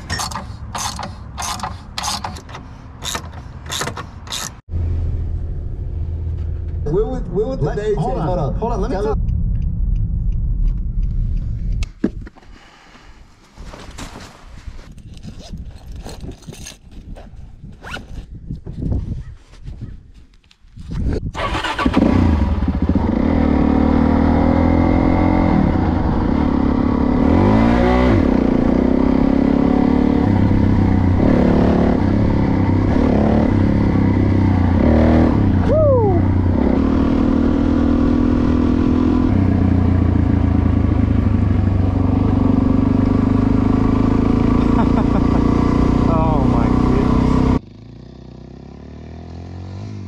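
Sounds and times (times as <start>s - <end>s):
motorcycle engine revving: 21.4s - 50.0s.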